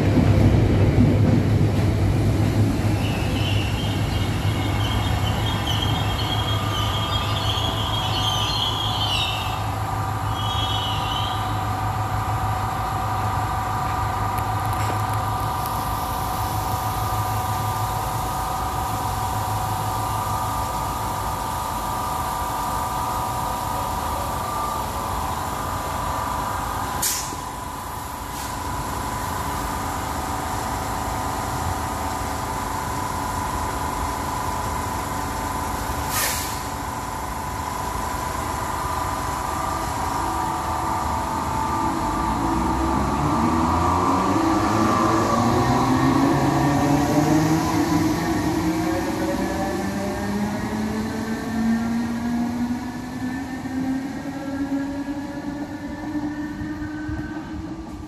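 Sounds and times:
electrical hum of train: 0:00.0 - 0:58.0
train brake squeal: 0:02.9 - 0:11.7, 0:36.1 - 0:36.7.

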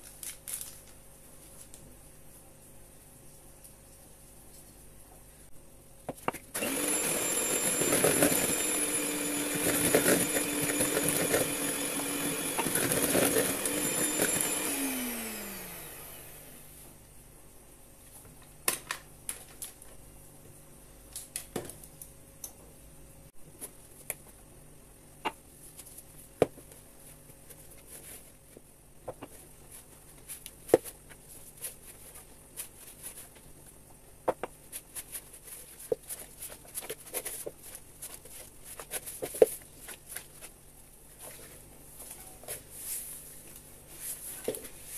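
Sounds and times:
electric hand mixer running: 0:06.6 - 0:16.7.

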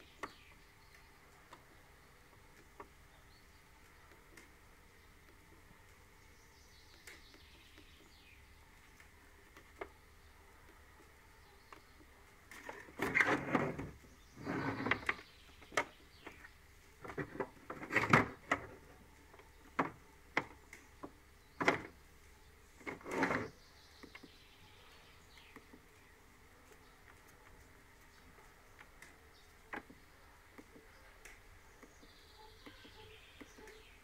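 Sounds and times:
handling rustles and scrapes: 0:12.5 - 0:15.3.

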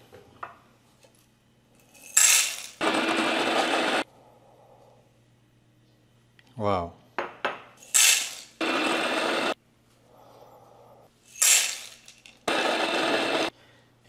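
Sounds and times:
electric coffee grinder: 0:02.8 - 0:04.0, 0:08.0 - 0:09.6, 0:12.5 - 0:13.5.

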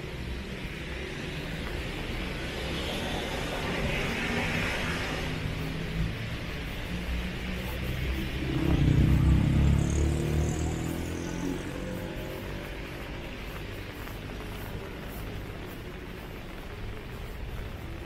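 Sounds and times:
rain hiss: 0:00.0 - 0:18.0
vehicle engine passing: 0:02.4 - 0:15.6.

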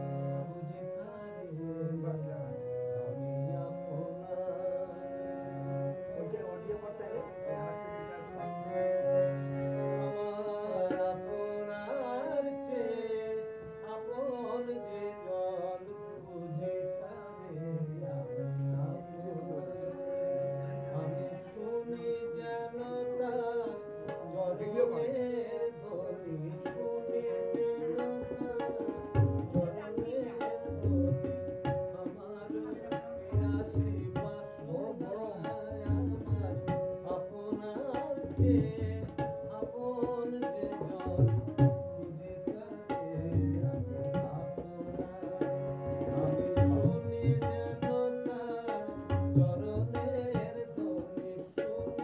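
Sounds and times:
harmonium melody: 0:00.0 - 0:52.0
tabla rhythm: 0:10.6 - 0:11.4, 0:23.2 - 0:52.0.

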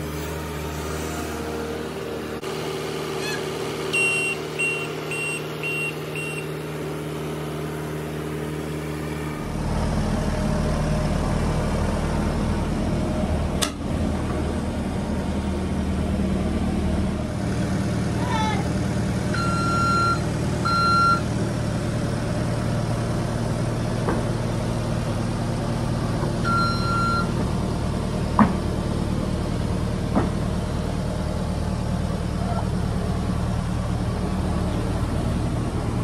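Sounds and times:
diesel engine running: 0:00.0 - 0:36.0
short beeps: 0:03.2 - 0:06.6, 0:19.4 - 0:21.3, 0:26.4 - 0:27.3.

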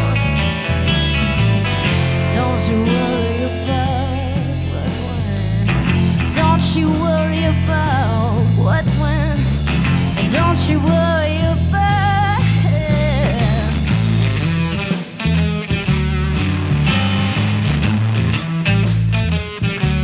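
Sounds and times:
rock band playing: 0:00.0 - 0:20.0
woman singing with vibrato: 0:02.3 - 0:09.6, 0:10.2 - 0:13.9.

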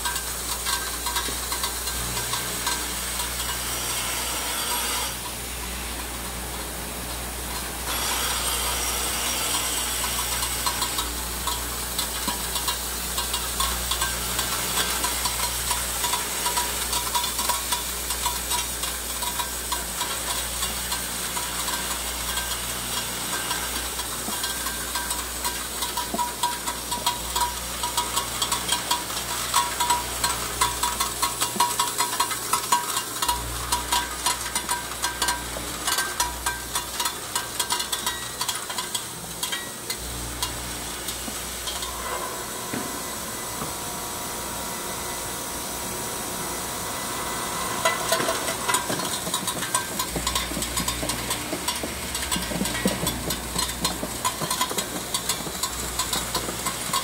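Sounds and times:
small parts clicking and rattling: 0:00.0 - 0:03.6, 0:09.5 - 0:41.9, 0:47.8 - 0:57.0.

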